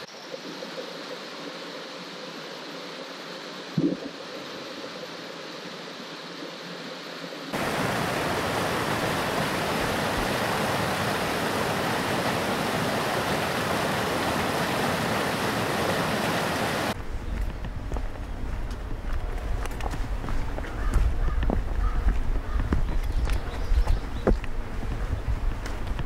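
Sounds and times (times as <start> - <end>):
stream rushing over rocks: 7.5 - 17.0.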